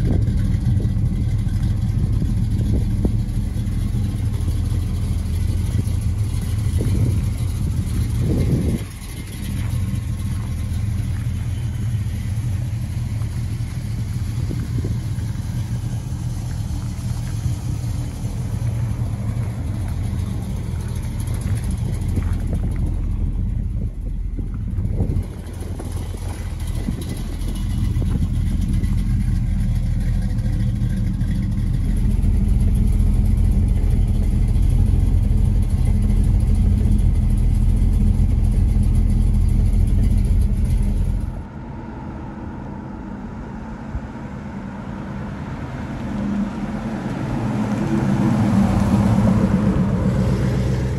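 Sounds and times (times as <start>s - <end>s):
car engine idling: 0.0s - 50.9s
car driving past: 41.0s - 50.9s.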